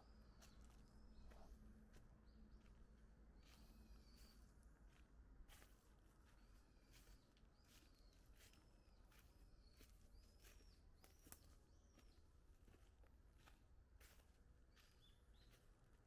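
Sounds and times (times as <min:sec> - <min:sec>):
bird chirping: 0:06.8 - 0:12.8.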